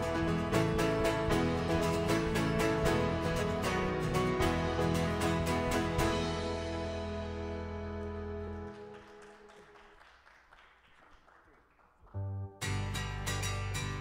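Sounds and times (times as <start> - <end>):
strummed guitar: 0.0 - 8.8, 12.6 - 14.0
worship band music: 0.0 - 9.6.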